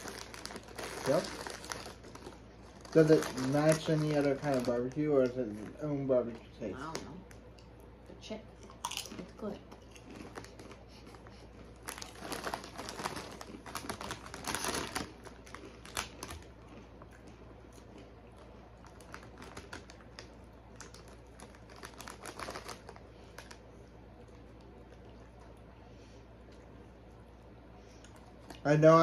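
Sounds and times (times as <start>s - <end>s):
potato chips being crunched: 0.0s - 5.9s, 11.8s - 16.8s, 18.8s - 23.6s
foil bag crinkling: 0.0s - 7.0s, 10.0s - 16.9s, 18.4s - 23.7s.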